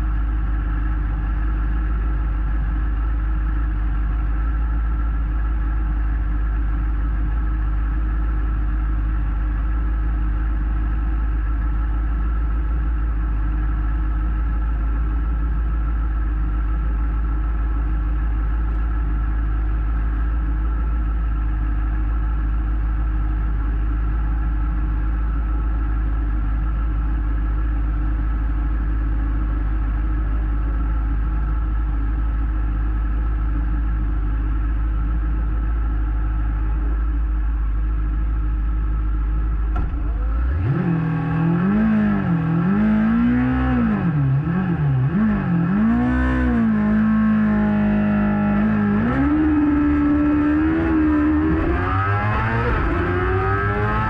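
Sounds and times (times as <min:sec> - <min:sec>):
motorcycle engine idling: 0:00.0 - 0:40.4.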